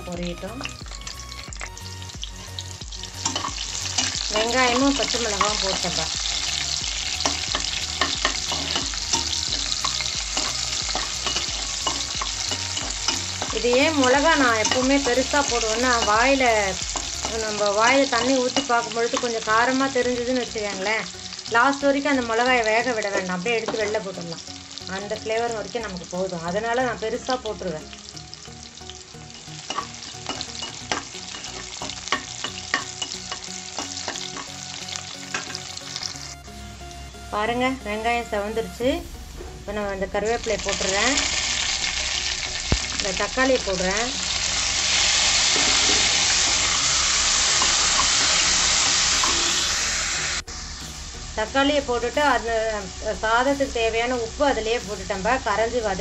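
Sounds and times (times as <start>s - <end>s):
onion sizzling in hot oil: 0.0s - 37.5s, 39.0s - 56.0s
spoon scraping metal pan: 3.2s - 4.2s, 7.1s - 16.3s.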